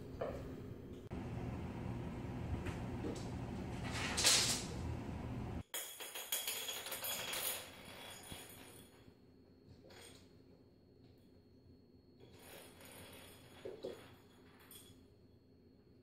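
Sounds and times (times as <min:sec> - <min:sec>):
low steady rumble: 0:00.7 - 0:05.6.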